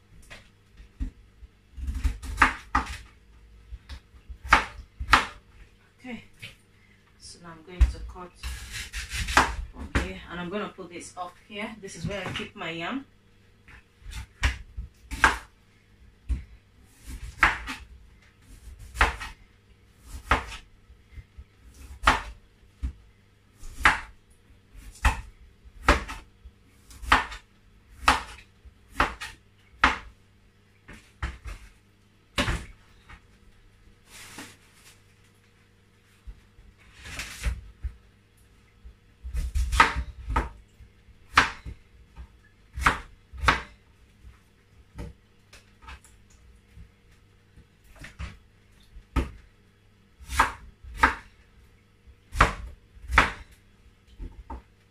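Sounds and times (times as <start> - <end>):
knife chopping on wooden board: 4.4 - 5.4, 7.8 - 10.1, 17.0 - 17.8, 18.8 - 19.4, 20.0 - 20.6, 21.8 - 23.0, 24.8 - 26.2, 26.9 - 27.4, 28.0 - 30.1, 39.3 - 40.6, 41.3 - 41.8, 42.7 - 43.7, 50.2 - 51.3, 52.3 - 53.5.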